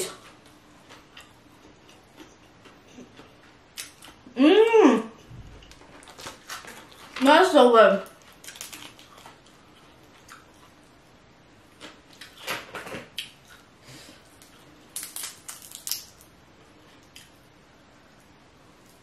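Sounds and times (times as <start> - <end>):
crawfish shell cracking: 14.4 - 16.3.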